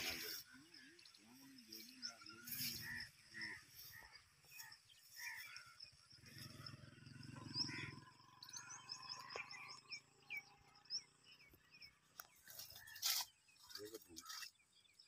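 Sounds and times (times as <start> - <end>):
faint birds chirping: 0.0 - 15.0.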